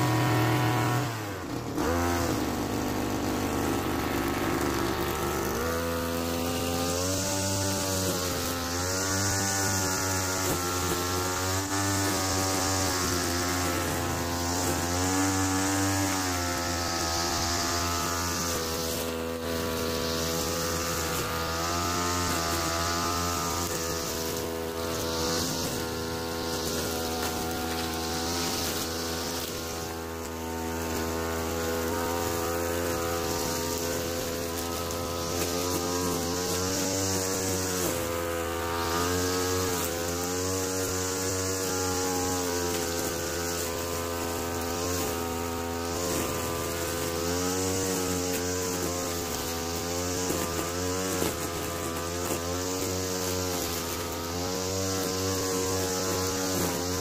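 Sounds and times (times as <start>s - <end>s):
two-stroke engine running: 0.0s - 57.0s.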